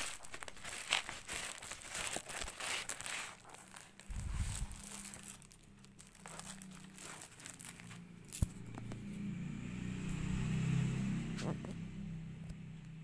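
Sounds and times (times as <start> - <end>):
cardboard packaging rustling: 0.0 - 9.0
plastic wrapping crinkling: 0.0 - 9.1.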